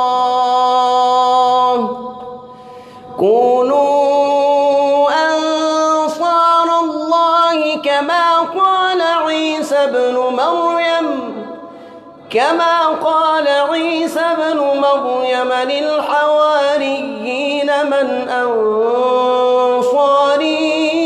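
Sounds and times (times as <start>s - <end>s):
man chanting through a microphone: 0.0s - 21.0s.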